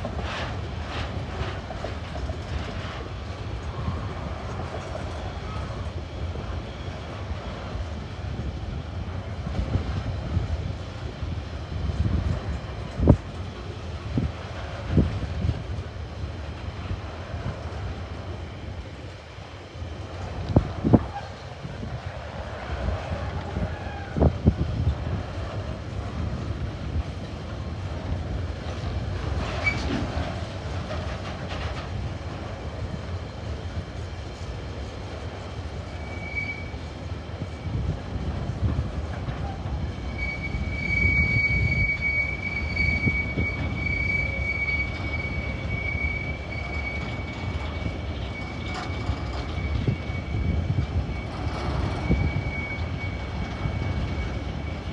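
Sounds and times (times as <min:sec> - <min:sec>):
train wagons rumbling past: 0:00.0 - 0:54.9
high wheel squeal: 0:35.8 - 0:37.8, 0:39.3 - 0:54.9.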